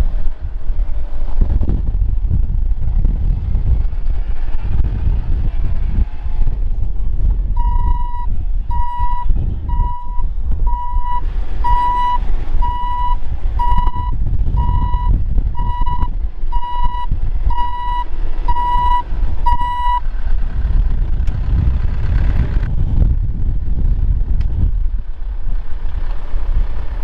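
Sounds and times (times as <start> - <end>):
low engine rumble: 0.0 - 27.0
reversing alarm beeping: 7.6 - 20.0.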